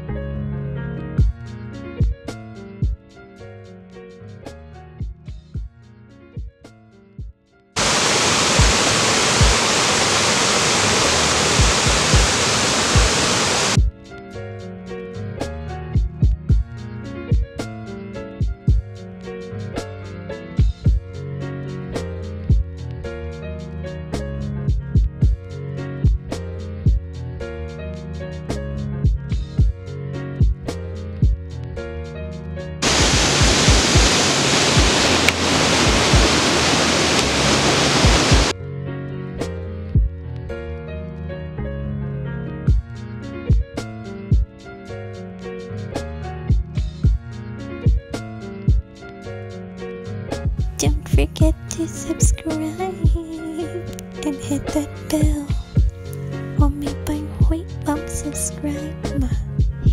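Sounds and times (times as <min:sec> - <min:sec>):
background music with beat: 0:01.2 - 0:07.5, 0:08.6 - 0:08.8, 0:11.6 - 0:12.4, 0:13.8 - 0:34.2, 0:39.4 - 0:40.6, 0:42.6 - 0:59.9
water rushing over rocks: 0:07.8 - 0:13.8, 0:32.8 - 0:38.5.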